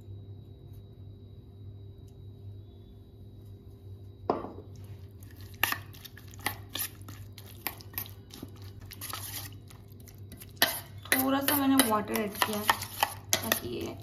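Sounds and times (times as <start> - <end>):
spoon scraping bowl: 4.8 - 14.0
metal spoon clinking in steel bowl: 10.5 - 14.0.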